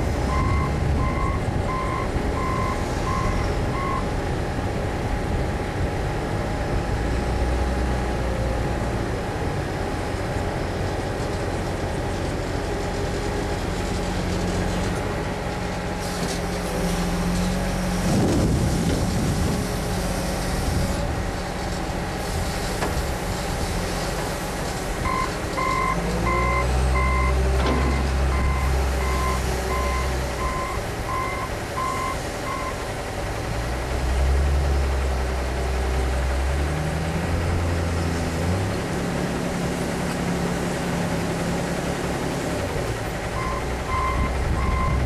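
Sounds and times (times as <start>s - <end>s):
diesel engines running: 0.0s - 45.0s
reversing alarm beeping: 0.3s - 4.1s, 25.0s - 32.8s, 43.4s - 45.0s.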